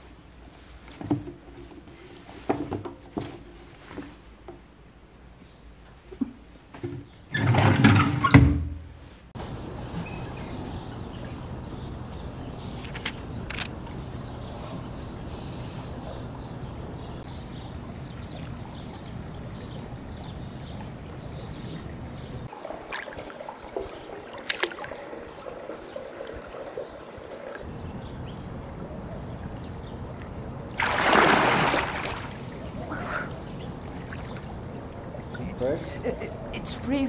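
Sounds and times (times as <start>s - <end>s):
water splashing in pool: 22.4s - 27.7s, 30.7s - 35.4s
swimmer splashing loudly: 30.8s - 32.6s.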